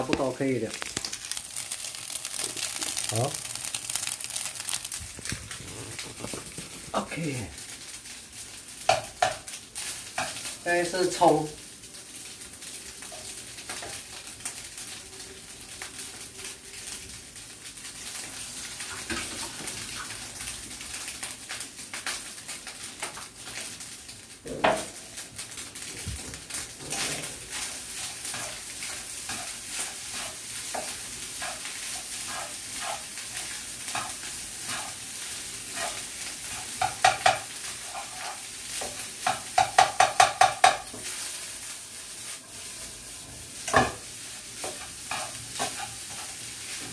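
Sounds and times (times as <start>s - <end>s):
rice sizzling in a frying pan: 0.0s - 46.9s
spatula scraping a pan: 26.8s - 41.2s, 43.6s - 46.9s.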